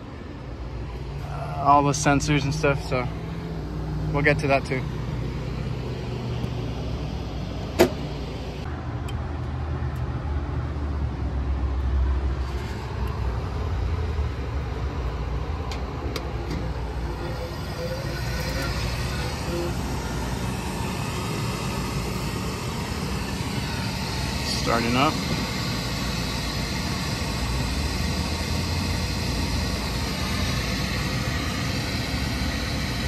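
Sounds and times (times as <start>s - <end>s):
steady motor hum: 0.0s - 9.2s, 9.9s - 33.0s
broad motor whirring: 16.3s - 33.0s.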